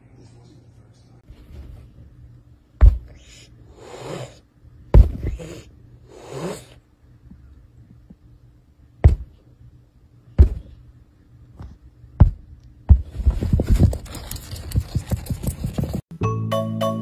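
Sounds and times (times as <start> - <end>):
faint steady hum: 0.0 - 15.9
cat scrabbling and rustling: 13.1 - 16.0.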